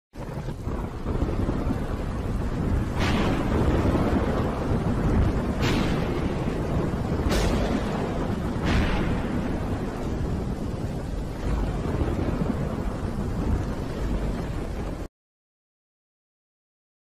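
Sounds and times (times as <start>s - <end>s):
deep thunder rumbling: 0.2s - 15.1s
sharp thunder crack: 0.2s - 15.1s
steady rain hiss: 0.2s - 15.1s.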